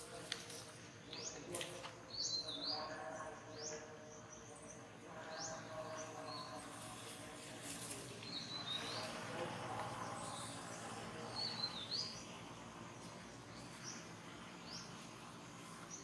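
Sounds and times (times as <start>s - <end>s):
outdoor background: 0.0s - 16.0s
bird chirping: 1.0s - 7.3s, 8.1s - 16.0s.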